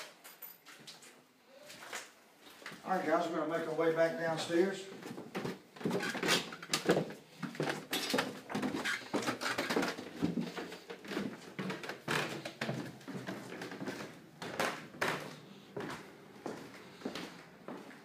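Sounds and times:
footsteps on wooden stairs: 0:04.9 - 0:18.0.

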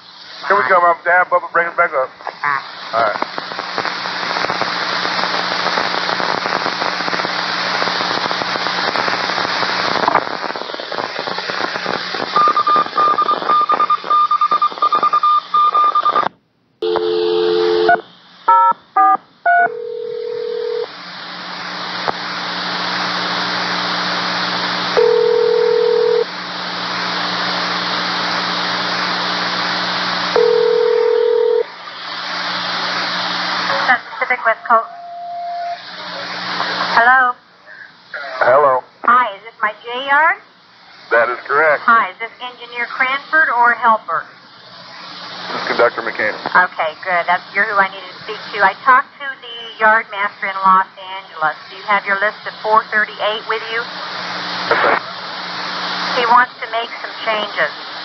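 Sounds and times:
radio static hiss: 0:00.0 - 0:58.0
touch-tone dialing tones: 0:12.4 - 0:20.8
low beeps: 0:34.5 - 0:35.8
pulsing high beep: 0:34.5 - 0:35.8.

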